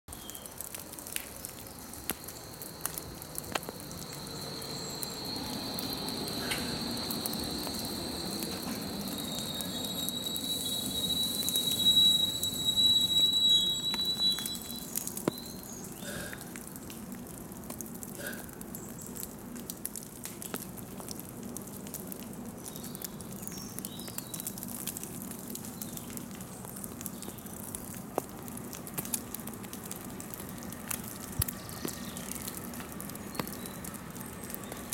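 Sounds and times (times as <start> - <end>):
snow dripping ticks: 0.1 - 34.9
train whine and rumble: 2.0 - 15.5.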